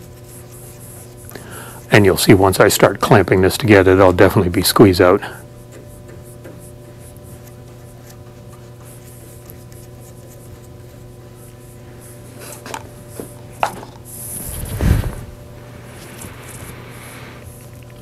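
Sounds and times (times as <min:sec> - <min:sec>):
stir stick scraping in paper cup: 0:00.0 - 0:02.3, 0:05.4 - 0:14.8
steady low hum: 0:00.0 - 0:18.0.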